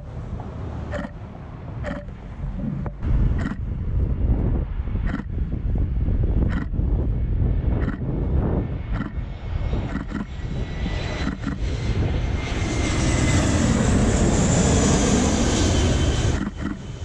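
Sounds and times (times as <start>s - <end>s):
jet airliner passing low: 0.0s - 17.0s.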